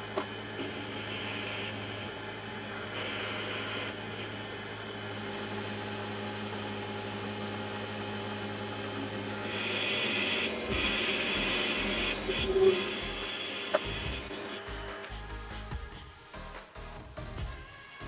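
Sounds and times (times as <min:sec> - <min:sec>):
lathe tool cutting metal: 0:00.0 - 0:15.1
lathe motor hum: 0:00.0 - 0:15.3.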